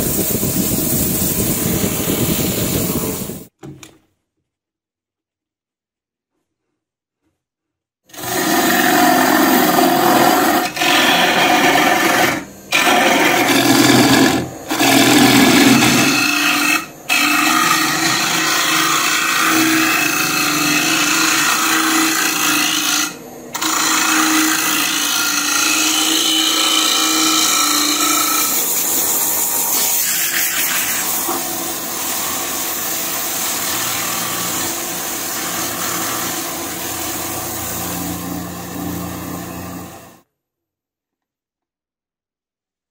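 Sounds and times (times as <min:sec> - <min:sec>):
gouge scraping spinning wood: 0:08.1 - 0:40.2.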